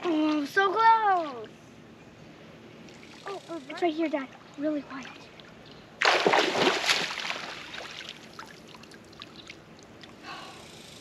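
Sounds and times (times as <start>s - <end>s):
water sloshing: 4.0s - 10.2s
splash in water: 6.0s - 8.6s.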